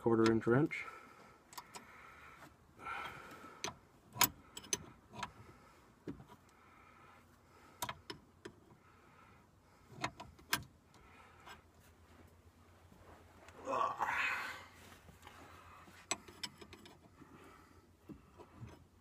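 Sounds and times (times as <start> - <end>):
wrench clicking on nut: 3.6 - 5.3.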